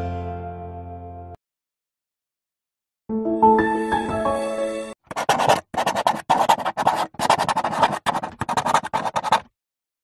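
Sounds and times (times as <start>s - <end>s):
marker pen scratching on paper: 5.1s - 9.5s.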